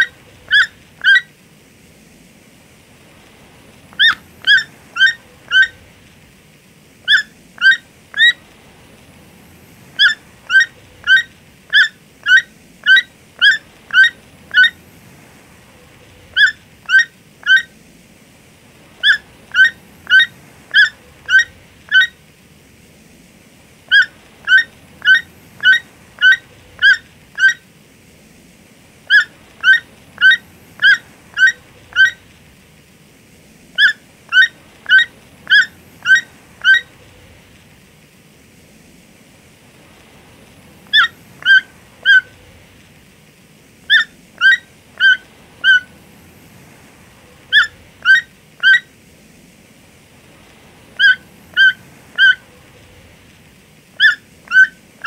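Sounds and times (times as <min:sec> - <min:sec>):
toucan calling: 0:00.0 - 0:01.3, 0:03.9 - 0:05.9, 0:07.0 - 0:08.4, 0:10.0 - 0:14.8, 0:16.0 - 0:17.8, 0:19.0 - 0:22.2, 0:23.9 - 0:27.7, 0:29.0 - 0:32.2, 0:33.7 - 0:37.0, 0:40.9 - 0:42.4, 0:43.9 - 0:45.9, 0:47.5 - 0:48.9, 0:51.0 - 0:52.6, 0:54.0 - 0:54.8
faint background hiss: 0:00.0 - 0:55.0.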